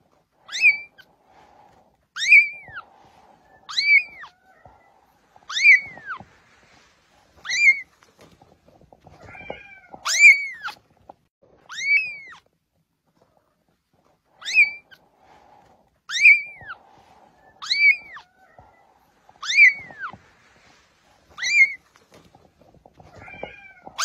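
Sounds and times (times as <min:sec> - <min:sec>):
faint rustling: 0:00.0 - 0:24.0
kitten mewing: 0:03.6 - 0:06.2, 0:09.1 - 0:10.8, 0:14.4 - 0:15.0, 0:16.1 - 0:20.2, 0:21.3 - 0:21.8.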